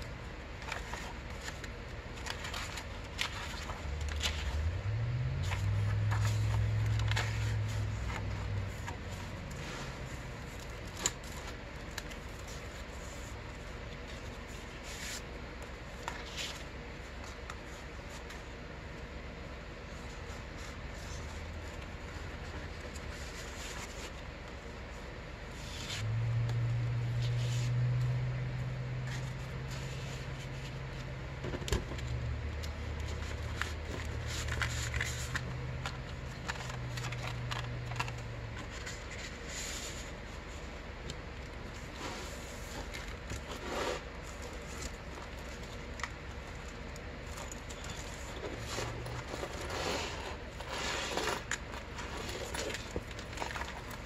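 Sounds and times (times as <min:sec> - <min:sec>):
low steady hum: 0:00.0 - 0:54.0
paper and card rustling: 0:00.2 - 0:19.0, 0:19.8 - 0:26.1, 0:29.0 - 0:54.0
small paper crinkles and clicks: 0:00.6 - 0:04.8, 0:05.4 - 0:09.6, 0:30.6 - 0:39.4, 0:50.5 - 0:54.0.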